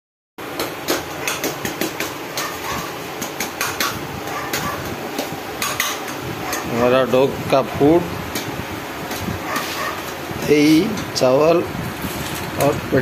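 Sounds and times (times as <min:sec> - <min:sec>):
steel bowls and utensils clinking: 0:05.6 - 0:07.0.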